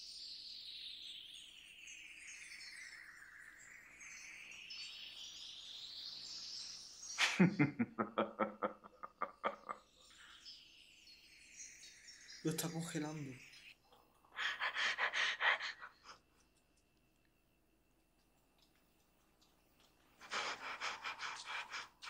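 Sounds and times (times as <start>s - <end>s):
shimmering hiss sweeping in pitch: 0.0s - 13.7s, 14.3s - 16.3s, 20.2s - 22.0s.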